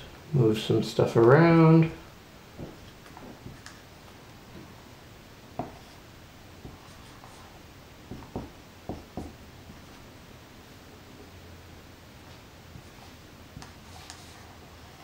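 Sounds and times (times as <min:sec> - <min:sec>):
marker writing on whiteboard: 0:05.6 - 0:06.0, 0:06.6 - 0:10.0, 0:12.8 - 0:15.0.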